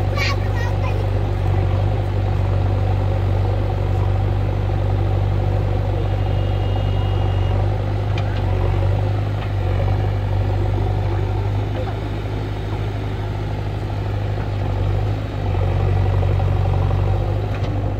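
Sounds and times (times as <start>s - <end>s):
diesel engine droning: 0.0s - 17.9s.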